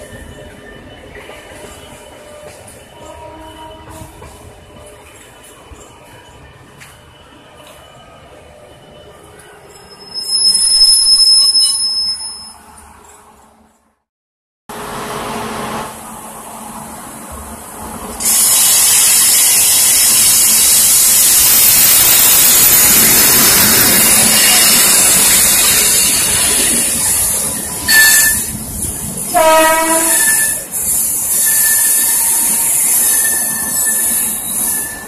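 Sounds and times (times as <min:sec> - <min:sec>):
train wheels hissing and squealing: 0:00.0 - 0:13.2, 0:18.1 - 0:35.0
train horn: 0:03.0 - 0:04.3, 0:29.3 - 0:30.6.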